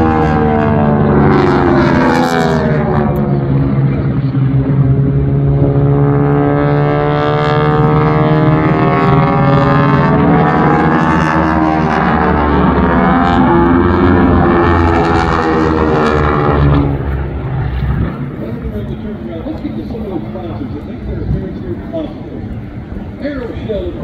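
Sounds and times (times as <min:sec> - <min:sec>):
propeller planes droning: 0:00.0 - 0:24.0.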